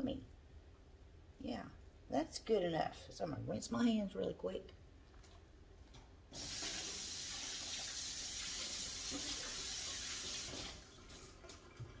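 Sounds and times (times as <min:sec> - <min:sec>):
faucet running: 0:06.3 - 0:11.8.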